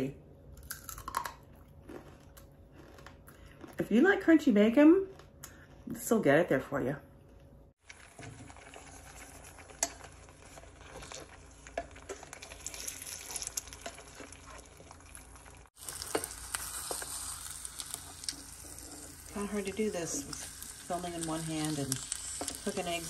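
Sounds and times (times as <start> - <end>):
bacon grease sizzling and crackling: 7.8 - 23.0.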